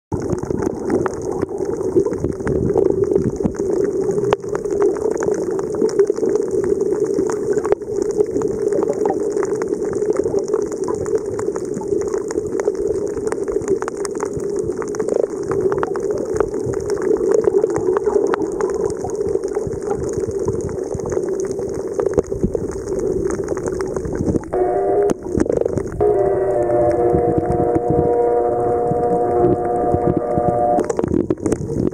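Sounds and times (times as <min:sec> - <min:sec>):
small crackling clicks: 0:00.1 - 0:26.0, 0:26.6 - 0:31.9
underwater wash of water: 0:00.1 - 0:31.9
pitched hum with several tones: 0:24.4 - 0:31.1.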